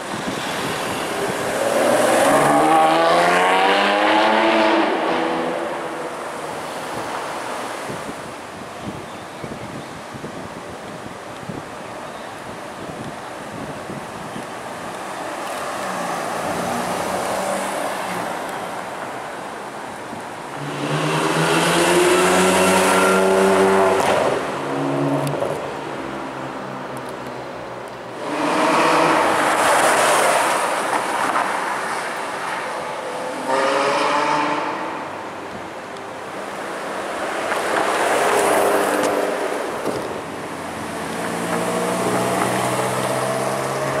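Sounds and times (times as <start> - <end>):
loud car engine pulling away: 1.4 - 5.5.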